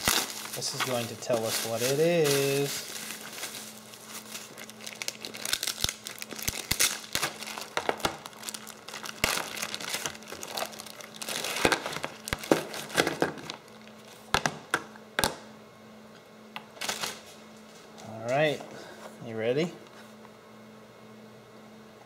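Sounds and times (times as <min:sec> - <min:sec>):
plastic wrapping crinkling: 0:00.0 - 0:14.3, 0:16.8 - 0:17.4.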